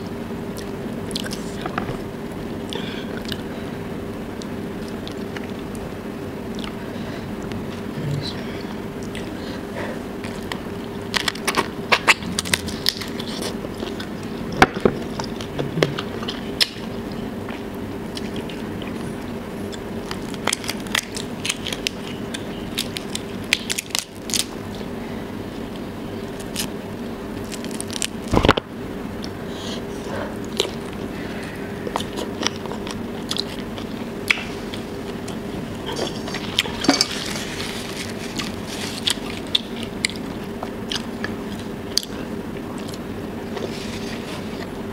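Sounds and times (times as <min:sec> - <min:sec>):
steady hum: 0:00.0 - 0:44.9
biting and chewing: 0:10.2 - 0:24.9, 0:25.8 - 0:28.6, 0:30.4 - 0:44.8.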